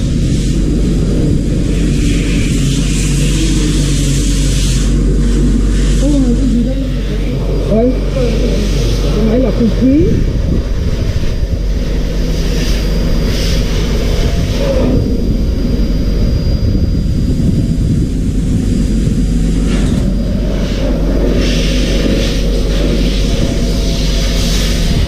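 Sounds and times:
machine humming and rumbling: 0.0s - 25.0s
bright hiss: 17.5s - 25.0s.

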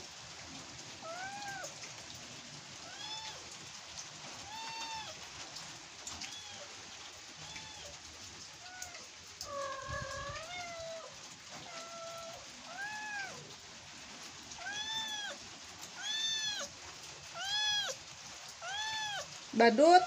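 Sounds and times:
kitten mewing: 8.6s - 13.5s, 14.6s - 15.4s, 16.0s - 16.7s, 17.4s - 18.0s, 18.6s - 19.4s.

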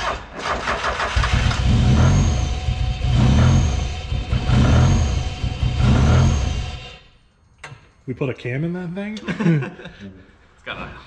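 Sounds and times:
car engine starter cranking: 0.0s - 2.5s.

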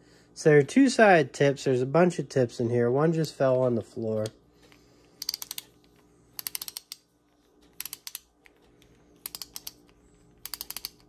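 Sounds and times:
ratcheting screwdriver clicking: 5.2s - 5.8s, 6.4s - 7.1s, 7.7s - 8.6s, 9.2s - 11.0s.

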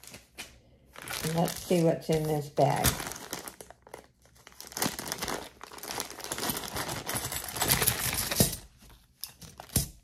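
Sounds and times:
bag rustling: 1.0s - 8.7s.

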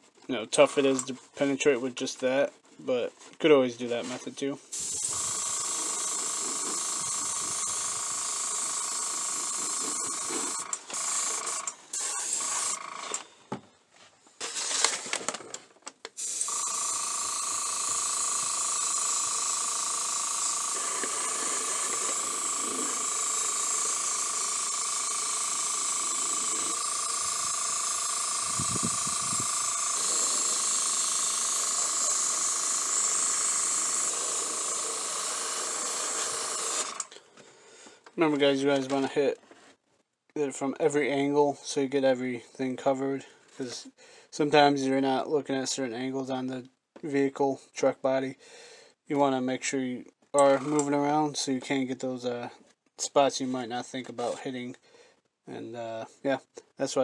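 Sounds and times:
airbrush spraying hiss: 4.7s - 10.6s, 20.3s - 35.0s.

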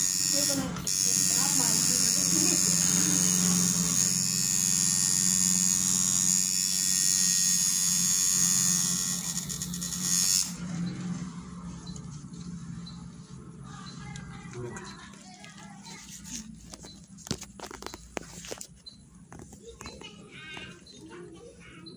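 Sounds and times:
tattoo machine buzzing: 0.0s - 11.0s.

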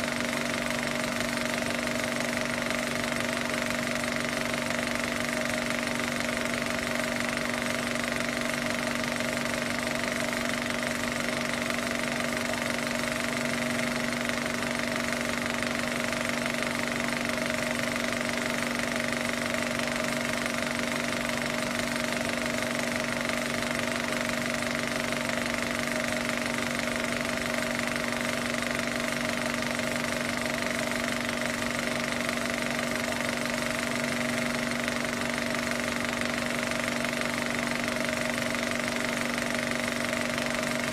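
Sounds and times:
film projector running: 0.0s - 40.9s.

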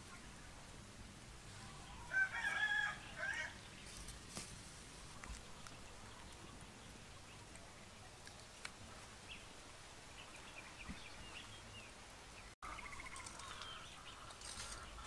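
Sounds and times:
small birds chirping: 0.0s - 15.0s
bird trill: 12.6s - 15.0s.

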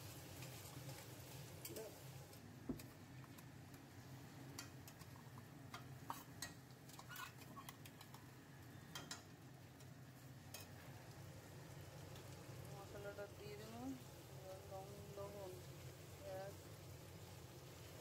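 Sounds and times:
spatula clinking against metal bowl: 8.9s - 9.3s.

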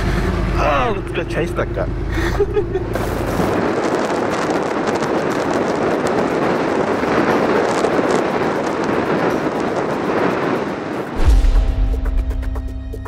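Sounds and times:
road noise: 0.0s - 13.0s
wind rushing over microphone: 2.4s - 12.8s.

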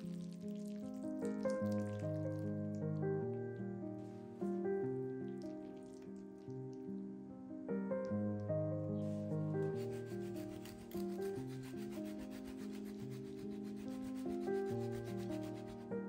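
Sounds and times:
soft piano music: 0.0s - 16.0s
cheese grating: 9.6s - 15.9s.

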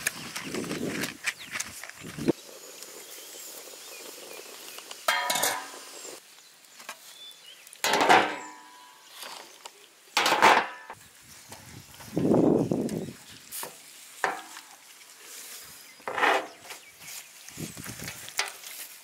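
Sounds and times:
metal cookware clanking: 5.1s - 5.9s, 7.8s - 9.0s, 10.2s - 11.0s.

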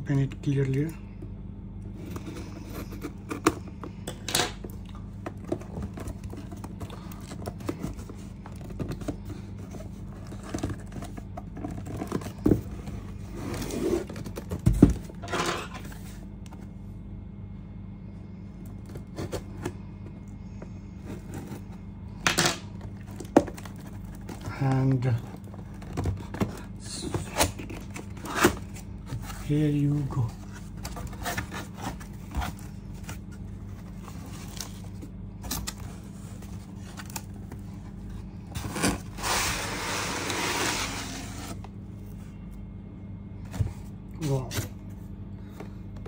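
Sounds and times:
cardboard scraping: 1.9s - 4.0s, 5.3s - 16.7s, 21.0s - 21.8s, 22.9s - 41.7s
box knocks and thump: 14.4s - 15.1s.

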